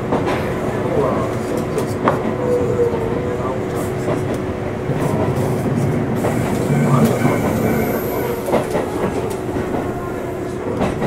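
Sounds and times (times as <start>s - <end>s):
train running noise: 0.0s - 11.0s
rail-joint clacks: 3.7s - 11.0s.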